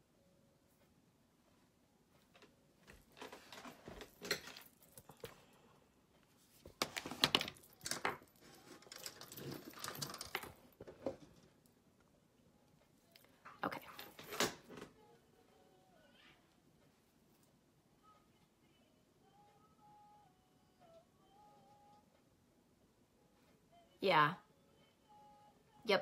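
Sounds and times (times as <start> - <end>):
items rustling and clattering: 2.1 - 11.8, 13.2 - 15.0.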